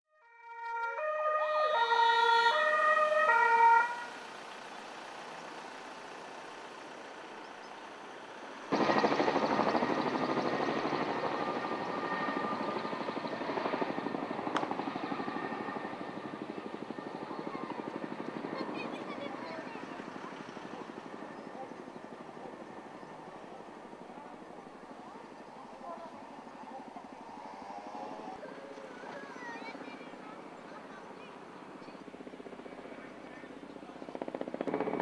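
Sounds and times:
two-tone siren: 0.1s - 4.4s
helicopter rotor chopping: 1.7s - 35.0s.

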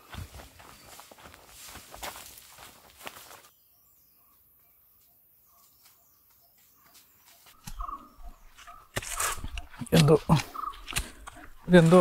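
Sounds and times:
footsteps on trail: 0.0s - 3.6s, 4.2s - 12.0s
faint bird chirps: 3.5s - 9.8s.

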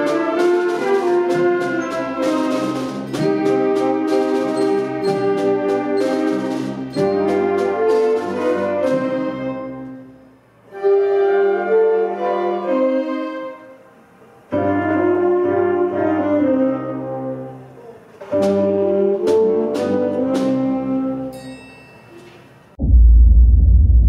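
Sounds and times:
strings saxophones and brass chords: 0.0s - 21.3s.

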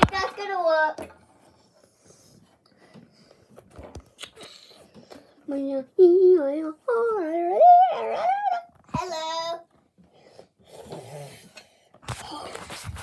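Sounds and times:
child making sing-song sounds: 5.5s - 9.7s.

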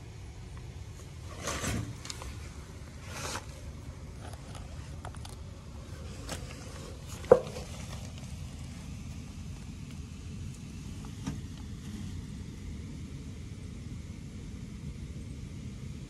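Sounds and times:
grain dryer burner and blower rumble: 0.0s - 16.0s
brief scraping noises: 1.3s - 2.4s, 3.0s - 3.6s.

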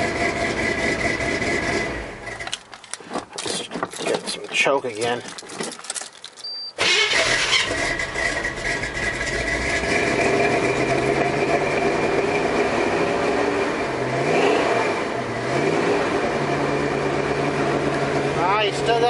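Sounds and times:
pickup engine running rough: 0.0s - 2.5s, 6.8s - 19.0s.

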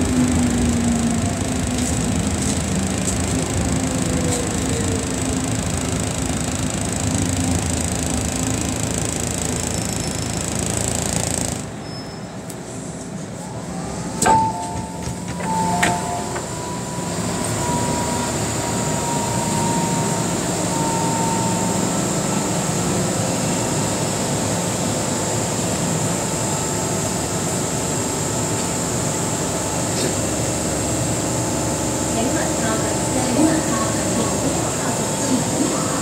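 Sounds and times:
train rumble: 0.0s - 8.7s, 12.5s - 36.0s
thin whine of braking train: 9.4s - 36.0s.

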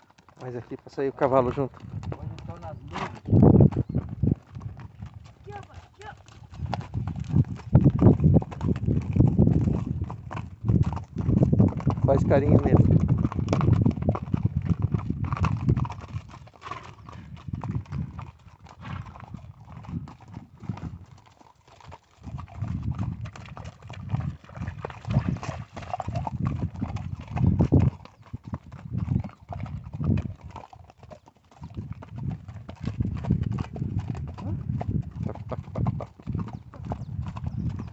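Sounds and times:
horse hooves on gravel: 0.0s - 37.9s.

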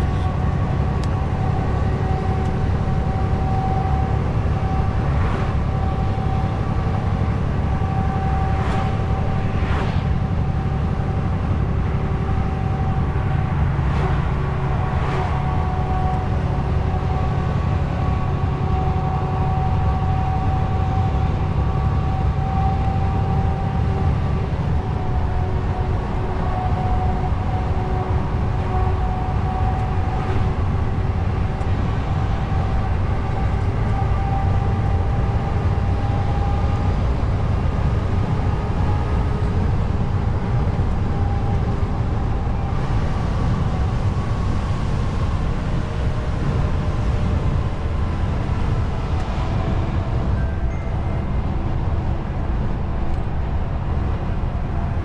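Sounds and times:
steady whine: 0.0s - 55.0s
truck engine and road rumble: 0.0s - 55.0s.

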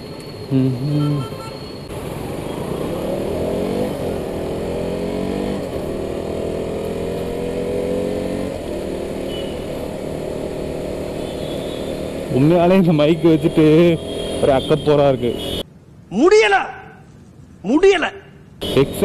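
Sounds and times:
brief steady tone: 0.2s - 1.9s
motorcycle engine accelerating: 2.0s - 12.8s.

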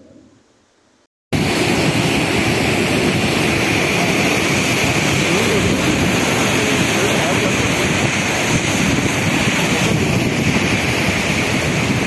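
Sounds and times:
surf breaking on beach: 1.3s - 12.0s
wind on microphone: 1.4s - 12.0s.

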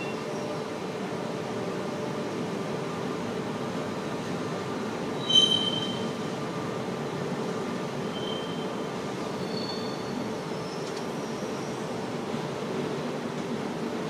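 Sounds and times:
freight train rumbling: 0.0s - 14.0s
wheel squeal: 5.2s - 6.2s, 8.1s - 8.7s, 9.4s - 10.1s.

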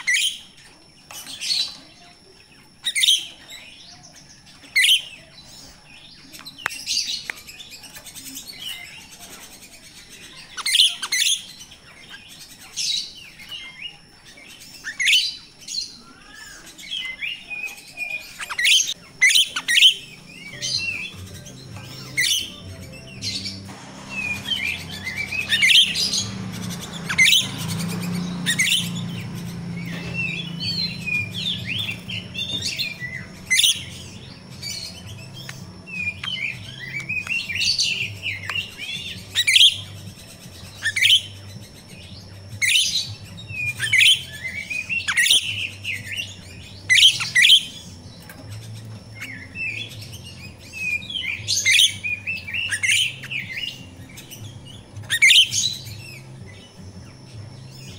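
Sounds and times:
bird chirping sharply: 14.6s - 42.0s
bird chattering: 16.2s - 41.8s.

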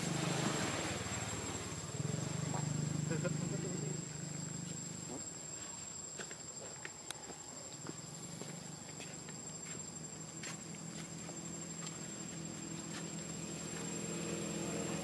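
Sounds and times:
low engine hum: 0.0s - 5.4s, 10.0s - 15.0s
high-pitched insect drone: 0.0s - 15.0s.

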